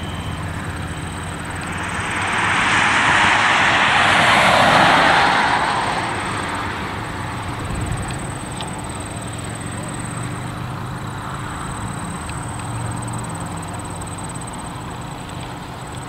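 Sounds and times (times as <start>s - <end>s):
turboprop aircraft passing: 0.3s - 12.3s.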